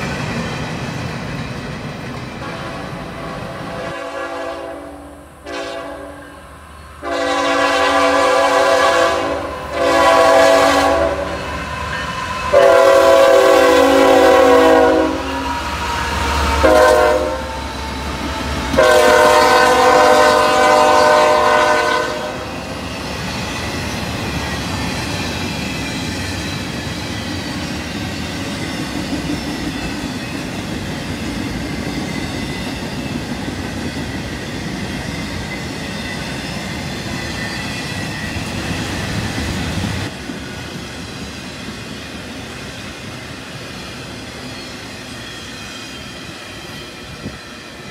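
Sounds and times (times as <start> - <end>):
train wheels rumbling on rails: 0.0 - 47.9
locomotive air horn blasts: 2.4 - 6.4, 7.0 - 11.4, 12.5 - 15.6, 16.6 - 17.6, 18.7 - 22.6.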